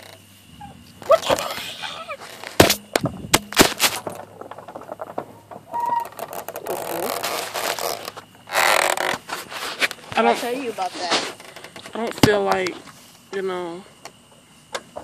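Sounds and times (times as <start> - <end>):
sharp knocks and clicks: 2.4 - 6.6.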